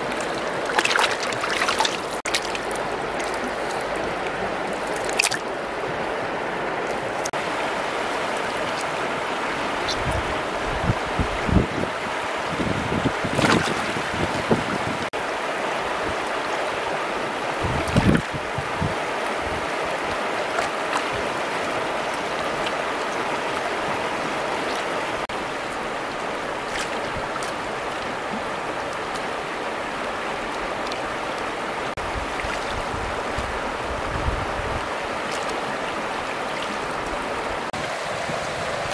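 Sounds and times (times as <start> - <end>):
river rushing over stones: 0.0 - 38.9
hands splashing in water: 0.1 - 3.9, 4.8 - 5.4, 26.7 - 27.6.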